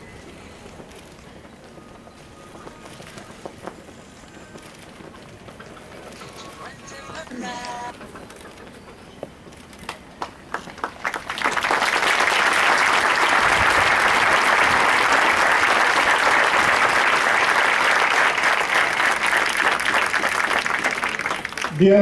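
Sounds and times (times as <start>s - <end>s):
crowd applauding: 9.9s - 22.0s.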